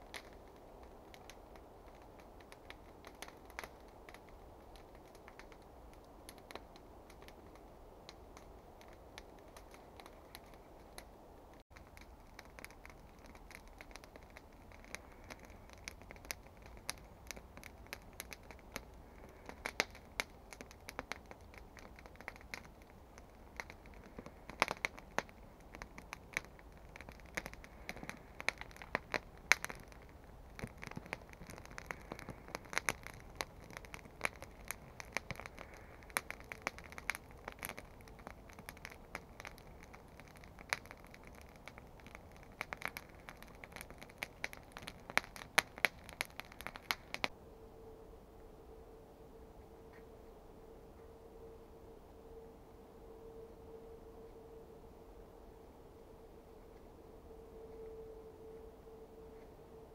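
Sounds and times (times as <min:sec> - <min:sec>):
sharp pops and snaps: 0:00.0 - 0:47.3
campfire crackling: 0:00.0 - 0:59.9.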